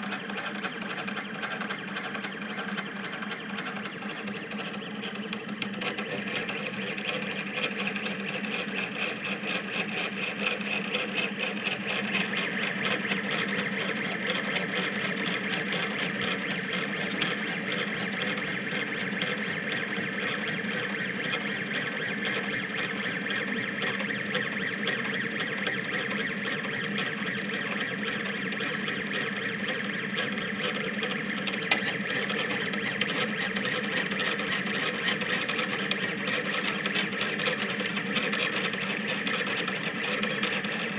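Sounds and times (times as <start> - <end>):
stepper motors whining: 0.8 - 40.9.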